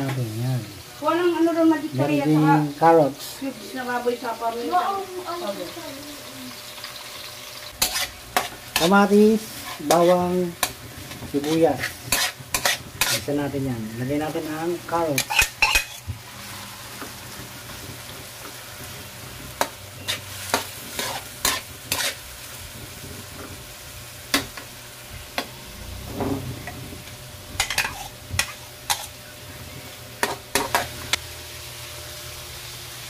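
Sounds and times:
vegetables sizzling in oil: 0.0s - 33.0s
metal spatula scraping a wok: 7.7s - 13.4s, 15.1s - 16.0s, 20.0s - 22.3s, 25.2s - 31.0s.

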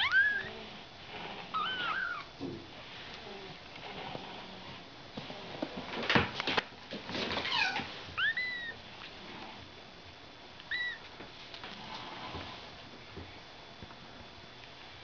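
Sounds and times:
kitten mewing: 0.0s - 0.6s, 1.5s - 2.3s, 7.6s - 8.8s, 10.7s - 11.0s.

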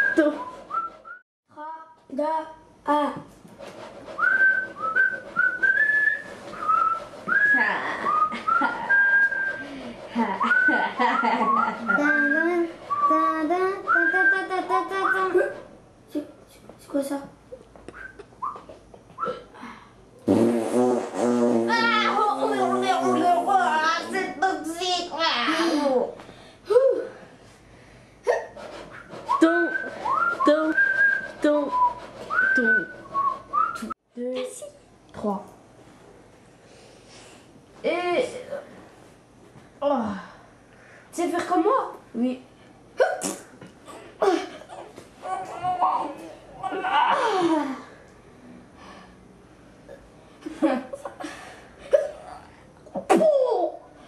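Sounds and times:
person whistling a tune: 0.0s - 1.2s, 4.2s - 9.8s, 10.4s - 15.4s, 29.0s - 34.0s.

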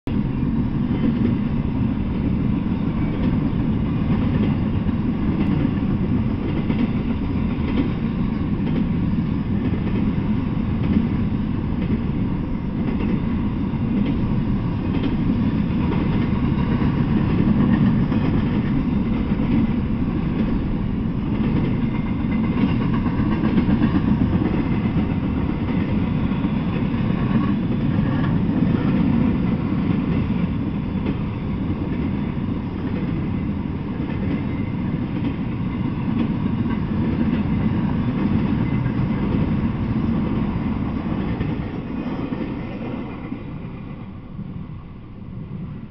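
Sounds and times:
freight train rumbling past: 0.1s - 45.9s.

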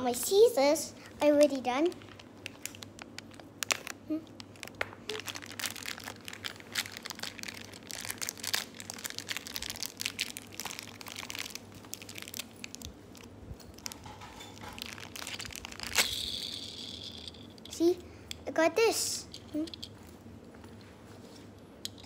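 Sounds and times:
plastic wrapper crinkling: 1.2s - 17.7s.

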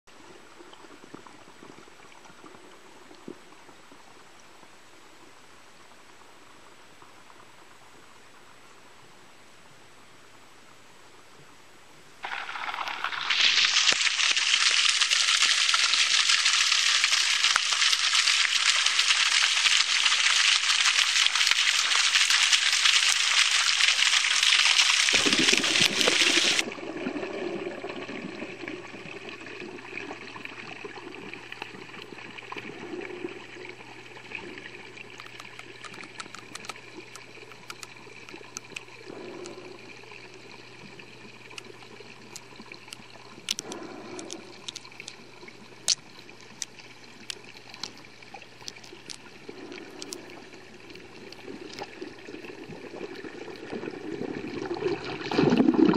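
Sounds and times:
rushing water splashing: 12.2s - 26.8s
muffled underwater hum: 25.1s - 54.6s
faint clicks: 35.1s - 39.6s, 45.9s - 51.9s.

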